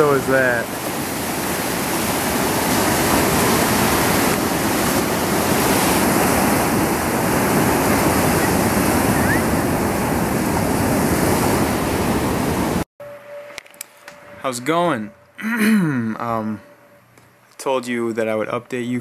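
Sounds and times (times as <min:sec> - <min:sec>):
big waves breaking: 0:00.0 - 0:12.9.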